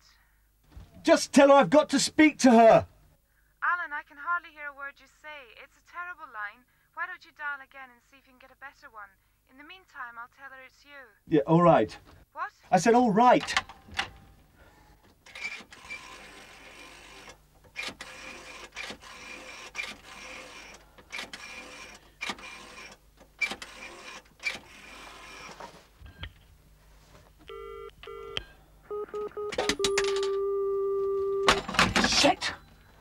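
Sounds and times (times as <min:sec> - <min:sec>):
rotary telephone dial whirring: 0:15.3 - 0:25.6
dial clicks: 0:27.4 - 0:31.6
telephone ringing tone: 0:27.5 - 0:31.6
steady telephone line tone: 0:27.5 - 0:31.7.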